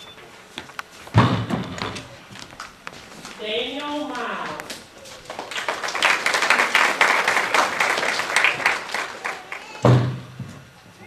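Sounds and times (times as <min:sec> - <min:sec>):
audience clapping: 0:05.2 - 0:09.9.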